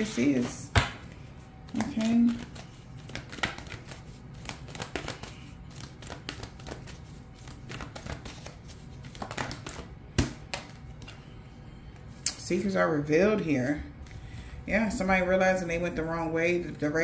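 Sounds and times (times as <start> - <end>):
cards being shuffled: 1.1 - 11.2.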